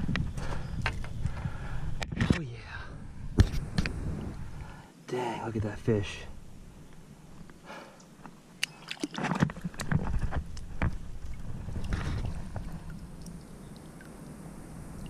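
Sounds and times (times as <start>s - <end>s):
water splashing and sloshing: 7.4s - 15.0s.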